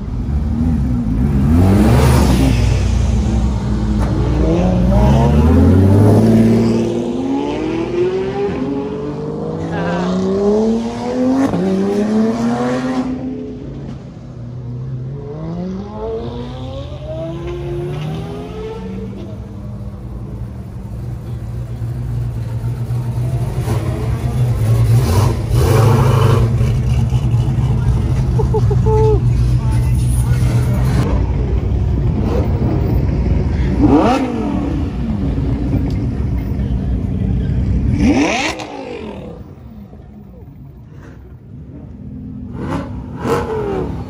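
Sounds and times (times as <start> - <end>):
car engine low rumble: 0.0 - 11.6, 13.1 - 44.0
sports car accelerating: 0.1 - 21.0, 30.0 - 44.0.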